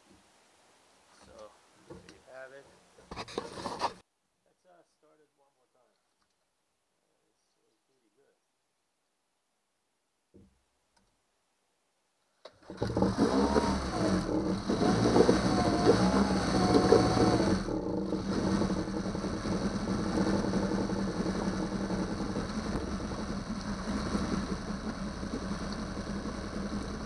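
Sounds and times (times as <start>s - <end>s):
outboard engine revving and idling: 12.6s - 27.0s.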